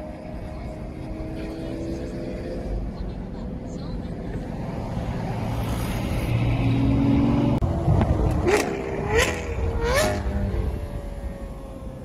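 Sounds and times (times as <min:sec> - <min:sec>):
car engine and road noise: 0:00.0 - 0:12.0
car engine revving with cracks: 0:05.9 - 0:10.3.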